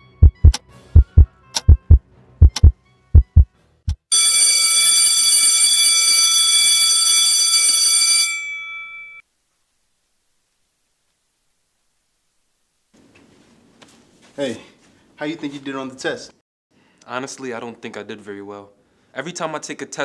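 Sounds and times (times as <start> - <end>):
heavy heartbeat-like thumps: 0.0 - 4.0
bell ringing loudly: 4.1 - 9.2.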